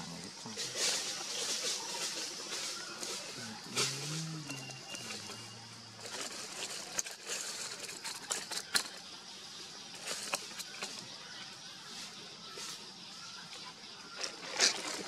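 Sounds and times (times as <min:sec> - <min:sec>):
high hiss: 0:00.0 - 0:06.1.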